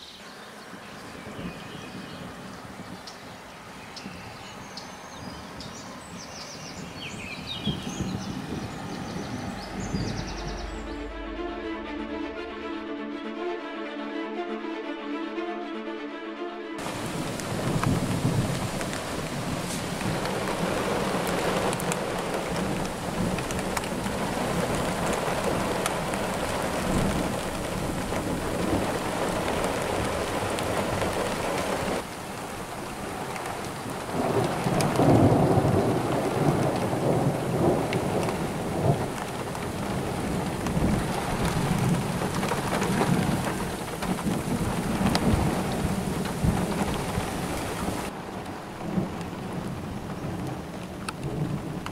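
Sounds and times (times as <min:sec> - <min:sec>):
rolling thunder: 0:07.7 - 0:12.1, 0:16.8 - 0:32.0, 0:33.1 - 0:51.9
steady rain: 0:16.8 - 0:51.9.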